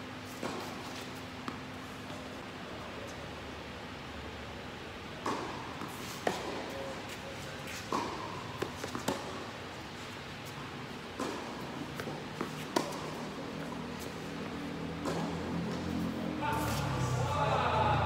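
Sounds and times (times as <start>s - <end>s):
tennis ball bouncing: 0.4s - 2.3s, 5.2s - 6.8s, 7.7s - 16.0s
racket striking tennis ball: 5.2s - 6.8s, 7.7s - 9.5s, 11.0s - 13.6s, 15.0s - 16.0s.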